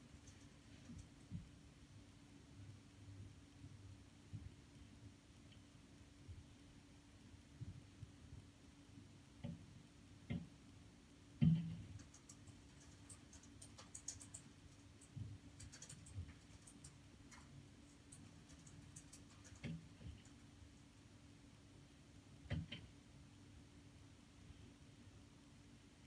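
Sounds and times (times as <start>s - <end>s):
light crackling ticks: 12.0s - 20.4s.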